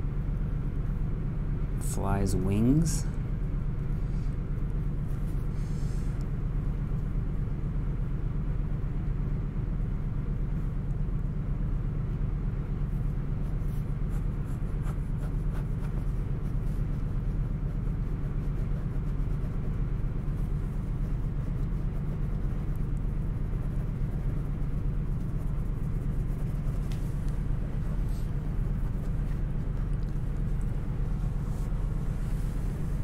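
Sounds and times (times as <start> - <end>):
steady low hum: 0.0 - 33.0
pen scratching on paper: 13.4 - 27.3.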